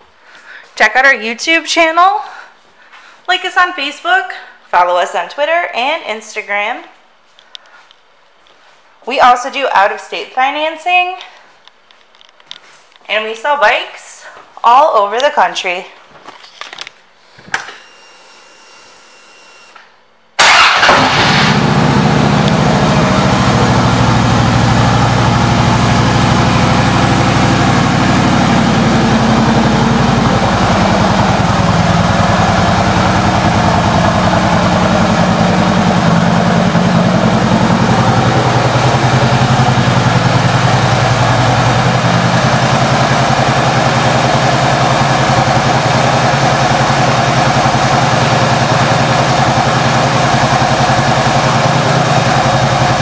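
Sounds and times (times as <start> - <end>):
motorcycle engine starting and idling: 20.4 - 53.0.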